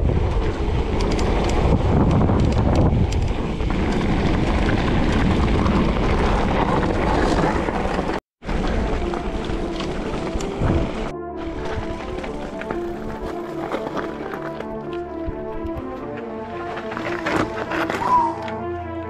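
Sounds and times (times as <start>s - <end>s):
wind buffeting microphone: 0.0s - 13.9s
bike tyres on trail: 0.0s - 18.5s.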